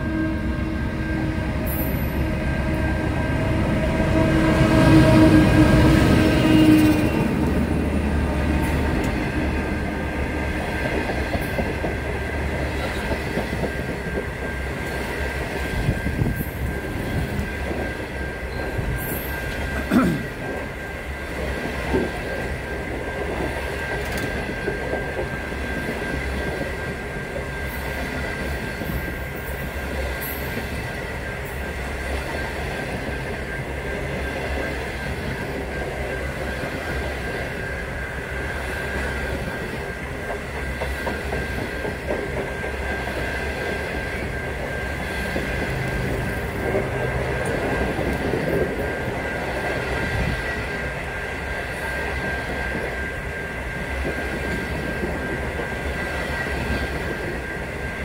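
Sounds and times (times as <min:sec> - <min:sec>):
diesel locomotive engine passing: 0:00.0 - 0:58.0
train clunks: 0:00.9 - 0:58.0
train wheel clatter: 0:04.7 - 0:58.0.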